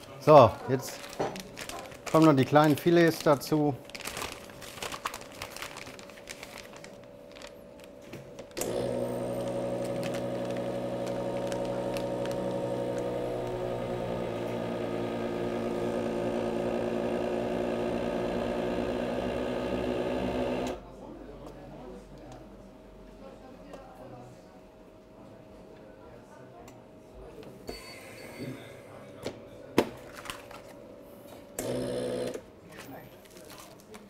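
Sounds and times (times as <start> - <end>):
bag handling clicks: 4.0 - 13.9
vacuum sealer pump humming: 7.3 - 20.8, 31.6 - 32.5.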